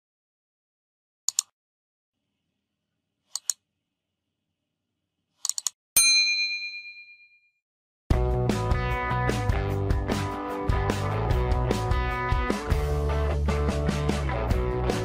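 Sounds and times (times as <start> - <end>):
notification bell ding: 6.0 - 7.5
music: 8.1 - 15.0.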